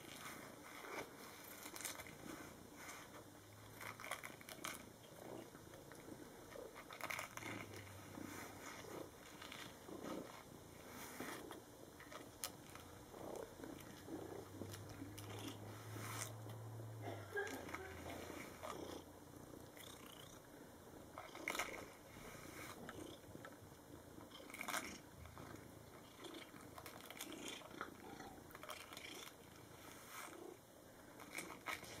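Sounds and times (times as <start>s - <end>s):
cat purring: 0.0s - 32.0s
brush scratching through fur: 7.4s - 11.6s, 13.2s - 16.4s.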